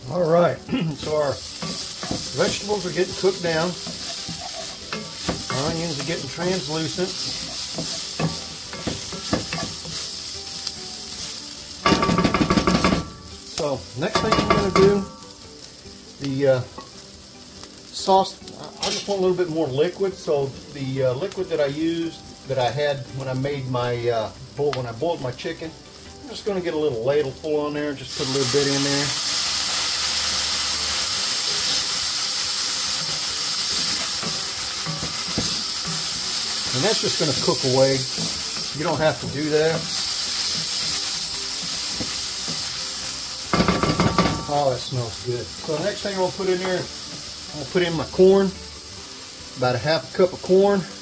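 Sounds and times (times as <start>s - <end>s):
vegetables sizzling in oil: 0.0s - 51.0s
spoon scraping pan: 1.4s - 13.0s
wooden spoon knocking pan: 11.9s - 13.3s, 14.1s - 15.1s, 43.5s - 44.8s.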